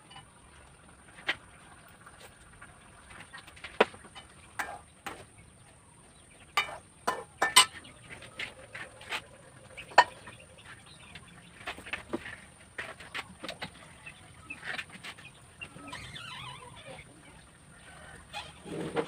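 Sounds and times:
metal ladle clinking on wok: 0:06.6 - 0:07.8.

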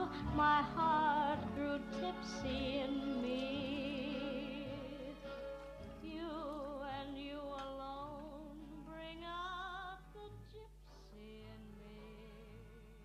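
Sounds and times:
woman singing with vibrato: 0:00.0 - 0:05.4, 0:06.0 - 0:13.0.

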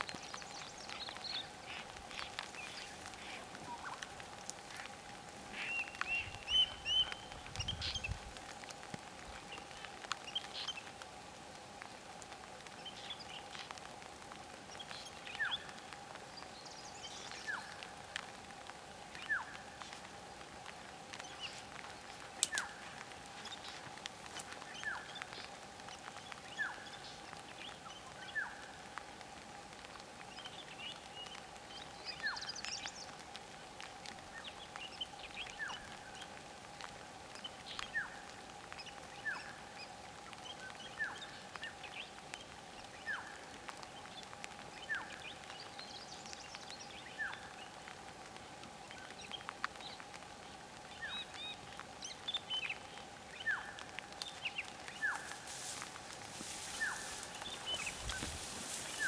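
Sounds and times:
bird falling call: 0:55.0 - 0:59.0.

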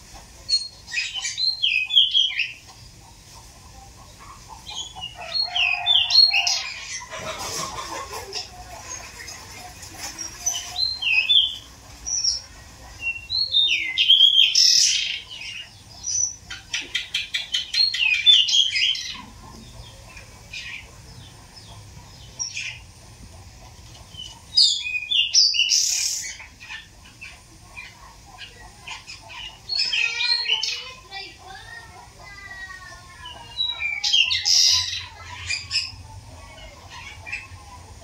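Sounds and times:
bird singing chirpy phrases: 0:10.2 - 0:21.4, 0:24.2 - 0:37.6.

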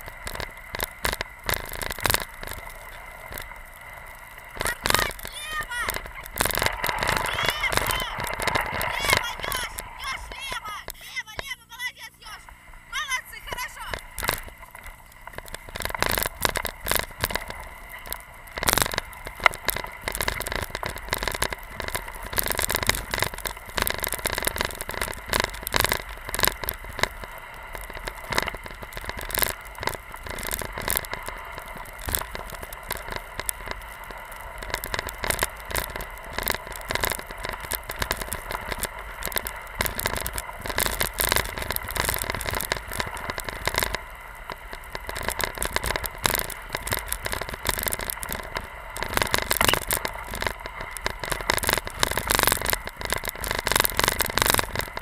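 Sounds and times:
crackles clicks and knocks: 0:00.0 - 0:55.0.

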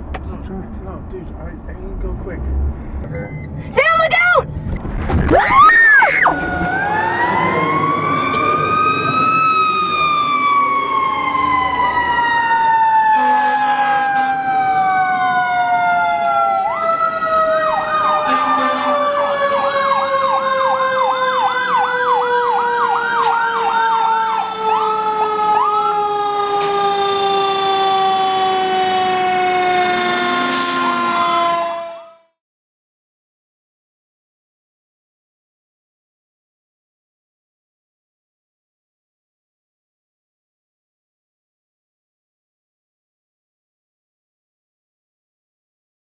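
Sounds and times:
siren sliding down in pitch: 0:05.2 - 0:32.4
yelping siren: 0:05.3 - 0:32.4.

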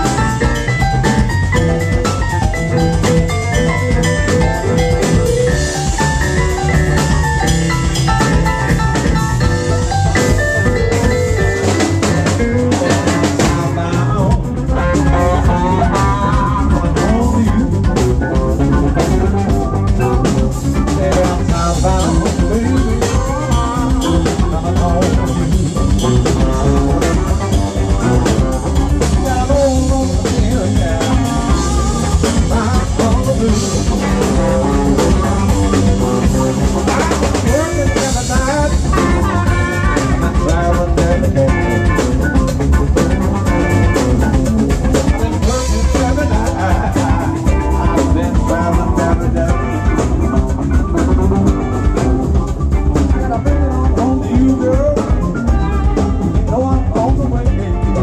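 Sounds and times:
live electric blues band: 0:00.0 - 0:58.0.

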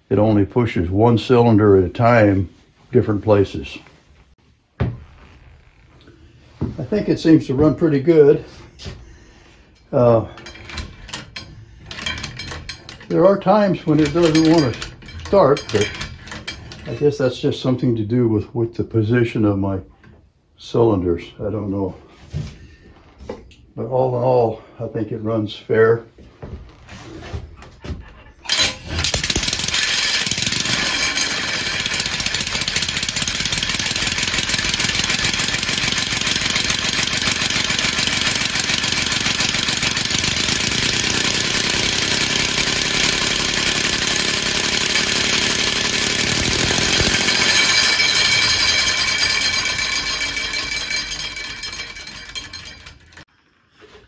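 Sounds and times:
compressed air engine running: 0:33.8 - 0:50.5.

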